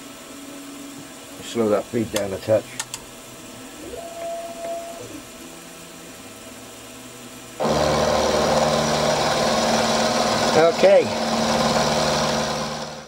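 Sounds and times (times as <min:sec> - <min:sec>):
quiet machine hum: 0:00.0 - 0:09.6
milling cutter cutting metal: 0:07.6 - 0:13.0.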